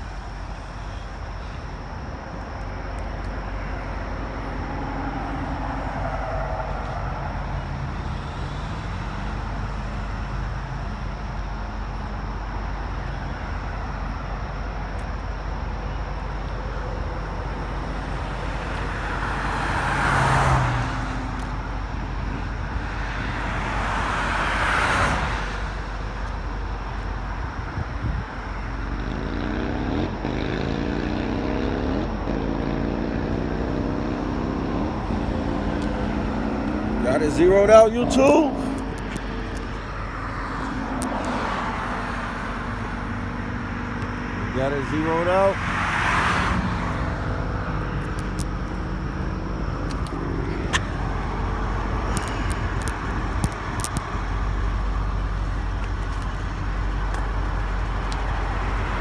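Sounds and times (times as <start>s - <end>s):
traffic rumble: 0.0s - 59.0s
vehicles passing: 0.0s - 59.0s
rising whine: 25.6s - 45.6s.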